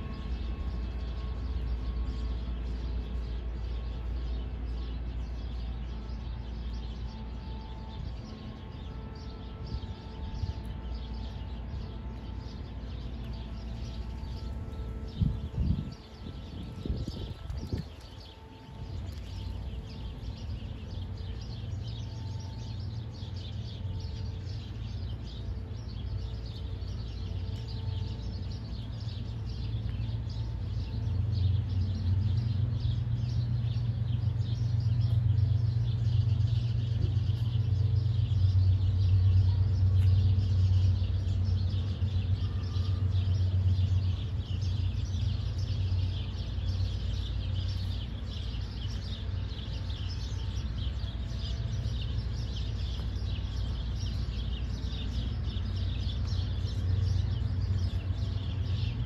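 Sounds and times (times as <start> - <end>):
small birds chirping: 0.4 - 59.0
low rumble: 12.6 - 59.0.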